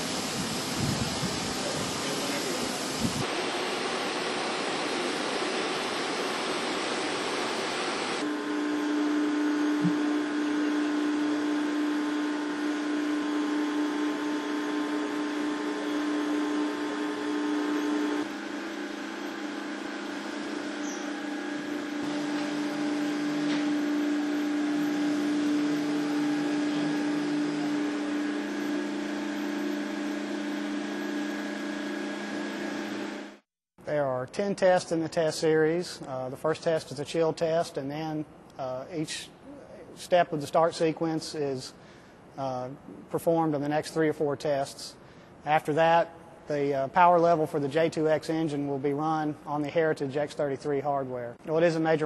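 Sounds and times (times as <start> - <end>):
rushing wind-like noise: 0.0 - 2.0, 2.9 - 3.2
steady machine hum: 0.0 - 33.5.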